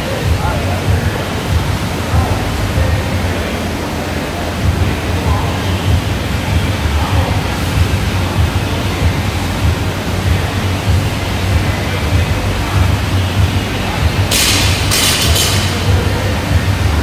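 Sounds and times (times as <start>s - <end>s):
steady rushing noise: 0.0s - 17.0s
barbell plates clattering: 14.3s - 16.0s.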